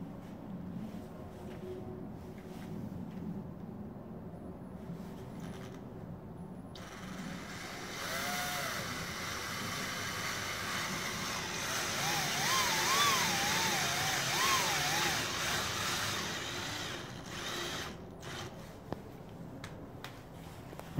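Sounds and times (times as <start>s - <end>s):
cordless drill whirring into wood: 6.8s - 18.6s.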